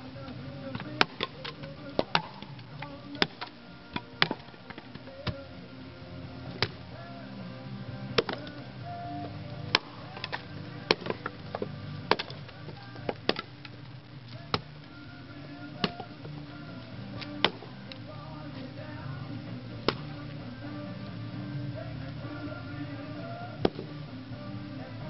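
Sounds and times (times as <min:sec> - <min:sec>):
background music: 0:00.0 - 0:25.0
axe splitting firewood: 0:00.2 - 0:05.5, 0:06.3 - 0:07.0, 0:08.0 - 0:18.7, 0:19.6 - 0:20.6, 0:23.6 - 0:24.0.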